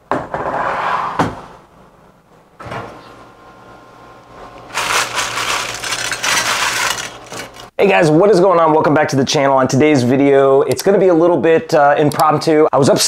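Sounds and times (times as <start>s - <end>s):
plastic mailer crinkling: 4.7s - 7.7s.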